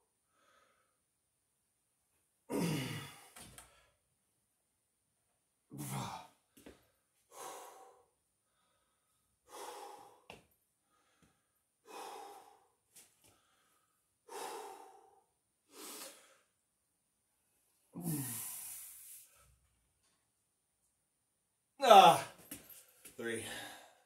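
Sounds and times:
man breathing hard: 7.3 - 16.6, 18.0 - 19.6, 22.9 - 24.0.

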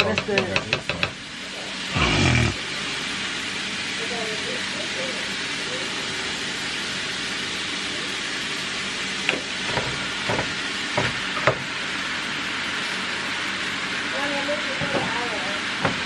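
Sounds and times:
spatula knocking on pan: 0.0 - 1.2
meat sizzling in a frying pan: 2.6 - 16.0.

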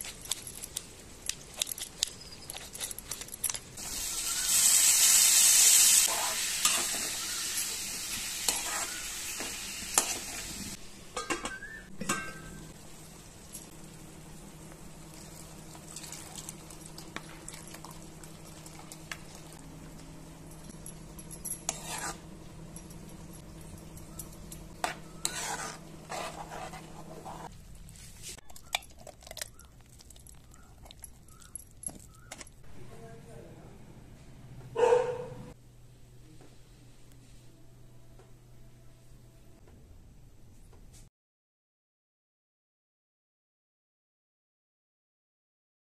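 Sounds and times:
tomatoes sizzling in oil: 3.8 - 11.2
metal spoon scraping pan: 8.4 - 9.1, 21.5 - 22.3, 24.7 - 27.5
low steady hum: 10.7 - 40.9.

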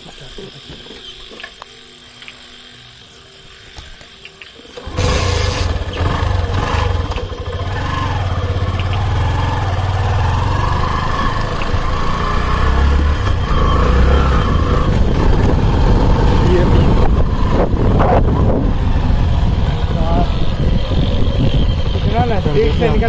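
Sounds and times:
motorcycle engine riding off: 4.7 - 23.0.

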